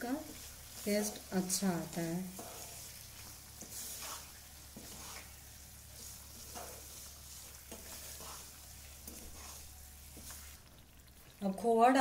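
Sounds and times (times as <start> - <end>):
faint sizzle: 0.0 - 12.0
spatula scraping a pan: 0.1 - 11.0.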